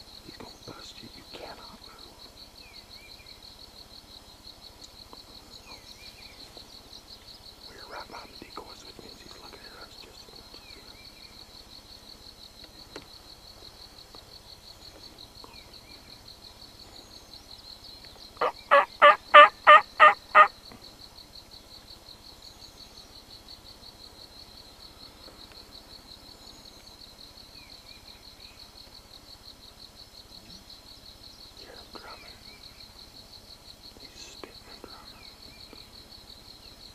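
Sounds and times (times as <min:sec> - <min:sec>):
turkey call hen yelps: 0:18.4 - 0:20.5
insect trilling: 0:18.4 - 0:20.6.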